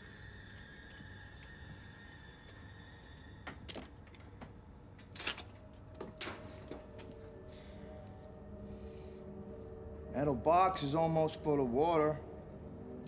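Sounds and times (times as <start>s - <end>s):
film score tone: 5.6s - 13.0s.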